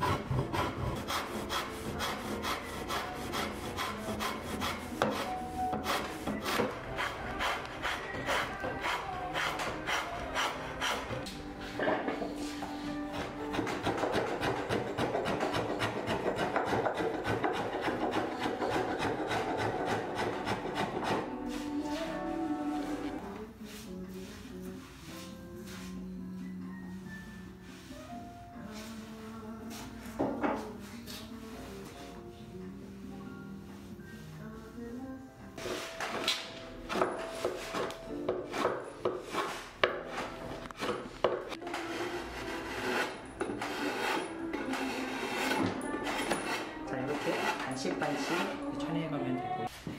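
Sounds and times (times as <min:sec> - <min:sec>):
blade shaving wood: 0:00.0 - 0:11.2, 0:13.2 - 0:21.4, 0:41.6 - 0:48.6
soft background music: 0:00.0 - 0:49.9.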